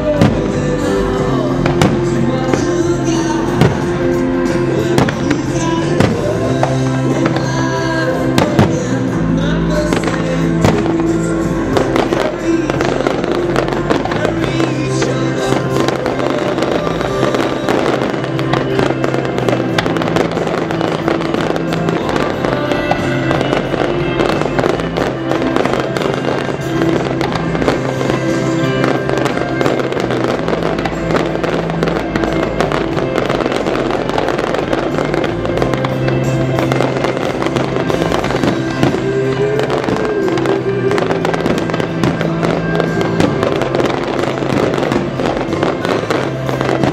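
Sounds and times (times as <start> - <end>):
fireworks bangs and crackles: 0.0 - 46.9
loud music with sustained notes: 0.0 - 46.9.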